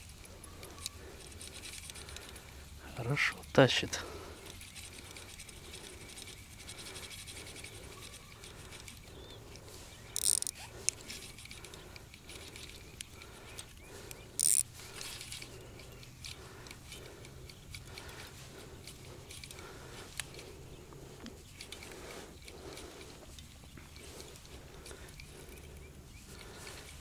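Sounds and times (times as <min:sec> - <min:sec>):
fishing reel whirring: 0:04.4 - 0:20.6.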